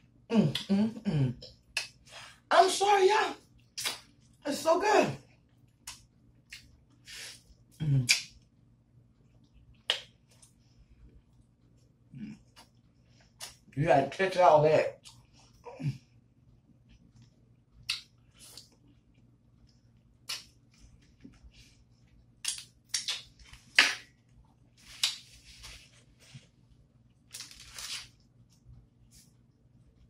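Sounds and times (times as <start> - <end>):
chewing and mouth smacks: 3.6 - 4.4, 5.4 - 8.5, 9.2 - 13.7, 15.0 - 15.6, 16.8 - 25.4
fingers being licked: 22.4 - 24.0.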